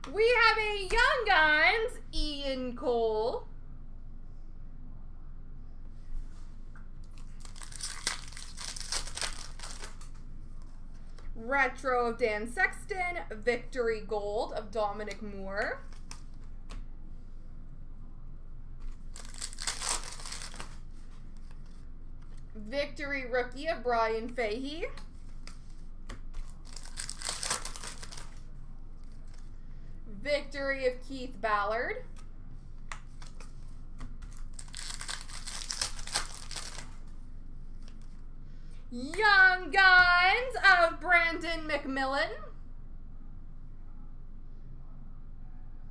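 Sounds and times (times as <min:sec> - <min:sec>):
card pack wrapper tearing: 0:07.1 - 0:10.2, 0:19.0 - 0:20.8, 0:26.3 - 0:28.4, 0:34.2 - 0:37.1.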